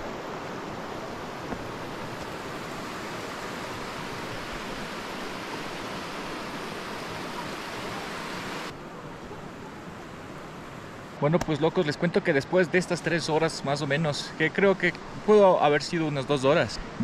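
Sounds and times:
stream rushing over stones: 0:00.0 - 0:08.8.

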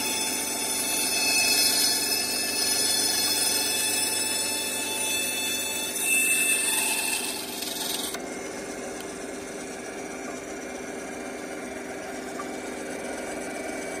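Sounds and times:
band saw cutting wood: 0:00.0 - 0:14.0
band saw motor humming: 0:00.0 - 0:14.0.

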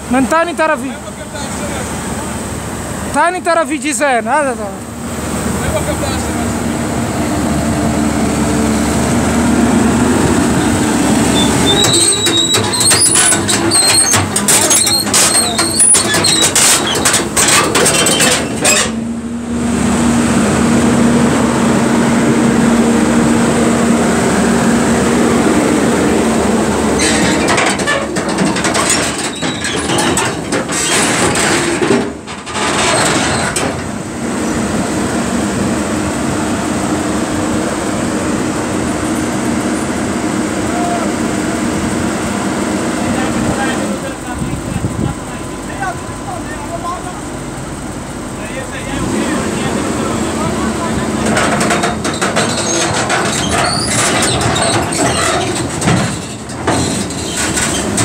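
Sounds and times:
diesel engine running under load: 0:00.0 - 0:58.0
steel tracks clanking and squeaking: 0:10.2 - 0:19.1, 0:26.8 - 0:34.6, 0:37.9 - 0:41.1, 0:49.4 - 0:58.0.

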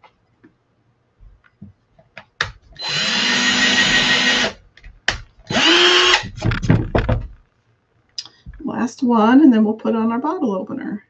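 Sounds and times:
cordless drill driving screws: 0:02.8 - 0:04.6, 0:05.5 - 0:06.3.

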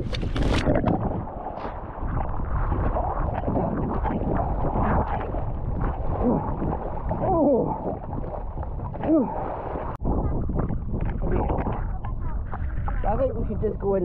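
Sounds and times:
water splashing and churning: 0:00.0 - 0:14.0.

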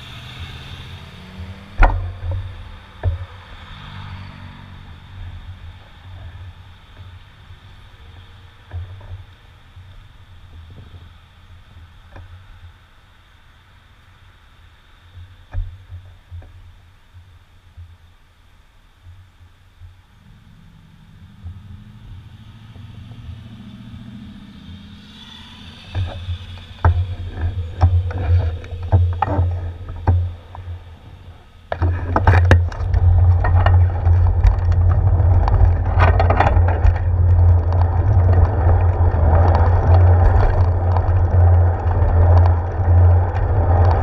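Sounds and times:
wind and road noise: 0:00.0 - 0:44.0
bicycle knocks and rattles: 0:01.6 - 0:03.8, 0:05.2 - 0:12.7, 0:15.2 - 0:18.2, 0:24.8 - 0:44.0.

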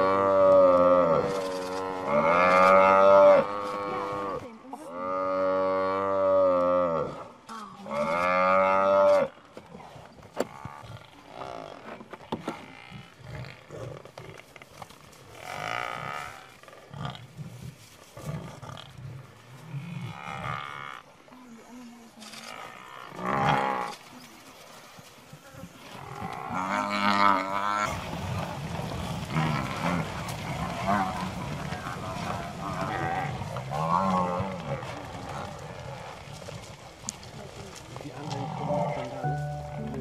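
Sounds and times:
lions growling: 0:25.8 - 0:39.2.

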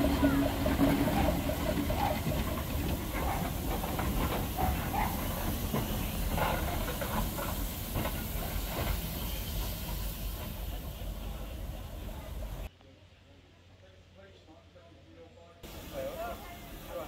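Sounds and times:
steam locomotive hissing steam: 0:00.0 - 0:12.7, 0:15.6 - 0:17.0
train knocks: 0:00.0 - 0:12.7
wheels rumbling on rails: 0:00.0 - 0:12.7.

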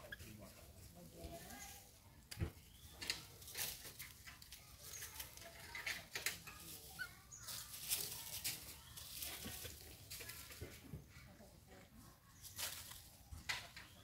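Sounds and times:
dry leaves rustling: 0:02.7 - 0:10.8, 0:12.3 - 0:14.0.

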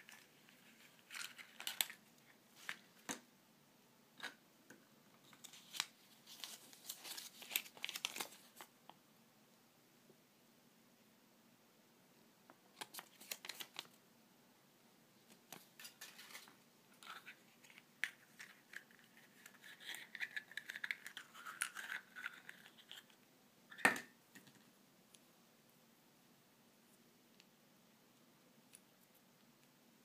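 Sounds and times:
paper rustling: 0:00.0 - 0:03.1, 0:05.2 - 0:08.7, 0:12.8 - 0:14.0, 0:15.3 - 0:23.1.

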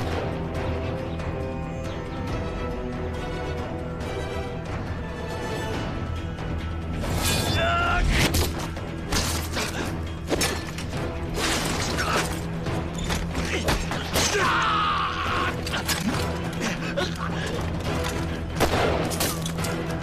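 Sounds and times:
tense action film score: 0:00.0 - 0:20.0
falling yell: 0:14.2 - 0:15.6
person crying out: 0:14.2 - 0:15.8.

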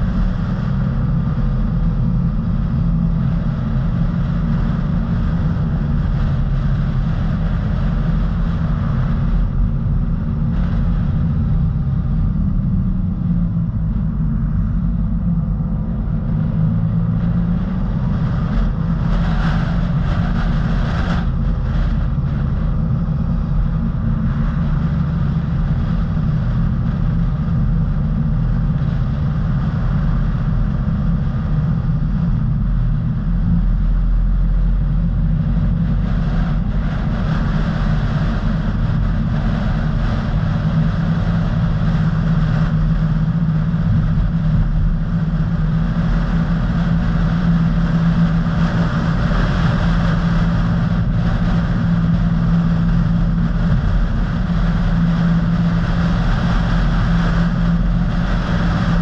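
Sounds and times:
car engine and tyre rumble: 0:00.0 - 0:59.0
steady low hum: 0:00.0 - 0:59.0.

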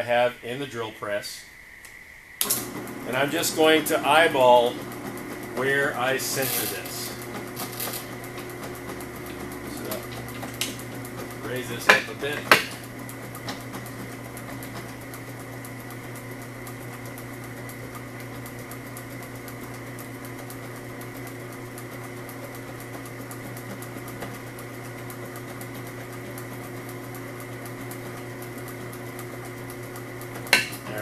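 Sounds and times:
drill bit cutting nylon: 0:02.4 - 0:15.5
drill press motor running: 0:02.4 - 0:31.0.

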